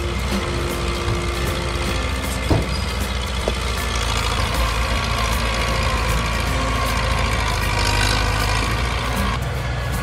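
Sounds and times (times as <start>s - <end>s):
diesel engine running: 0.0s - 10.0s
short knocks: 2.4s - 3.6s.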